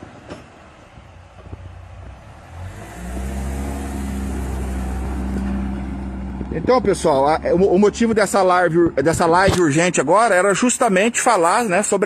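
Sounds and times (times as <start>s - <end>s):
car engine pulling away: 0.0s - 9.0s.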